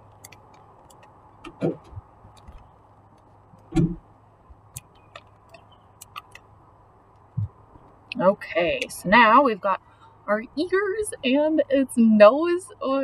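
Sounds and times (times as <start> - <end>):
soft thump: 3.7 - 4.0.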